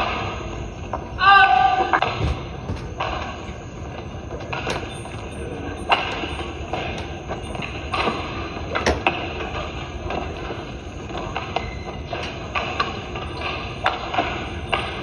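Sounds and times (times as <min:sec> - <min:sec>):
indoor hall background noise: 0:00.0 - 0:15.0
shoe squeaks: 0:02.0 - 0:08.8, 0:10.7 - 0:15.0.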